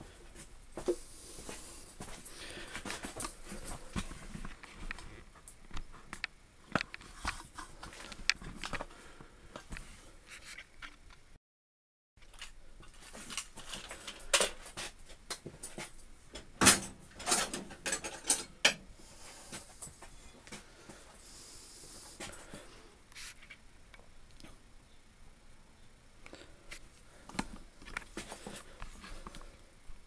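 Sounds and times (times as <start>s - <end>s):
clicks and knocks on metal parts: 13.2s - 18.9s.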